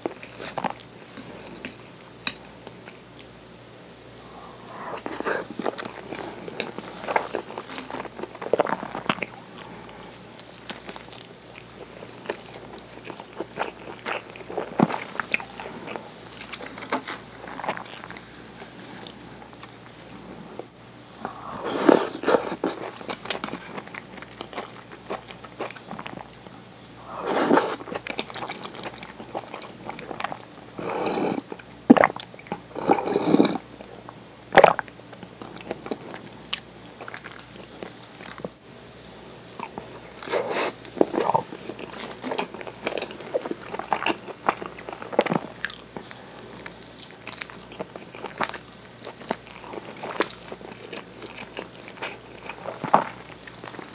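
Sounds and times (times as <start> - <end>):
person sipping soup: 4.2 - 10.0, 21.2 - 23.8, 27.0 - 32.1, 32.7 - 33.6
person chewing: 4.2 - 20.4, 21.2 - 33.9, 34.6 - 38.5, 39.6 - 53.9.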